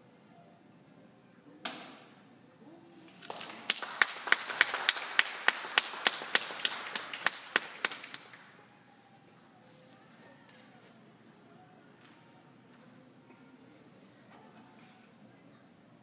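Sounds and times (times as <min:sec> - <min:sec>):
audience applauding: 0:03.2 - 0:08.5
person clapping nearby: 0:03.2 - 0:08.5.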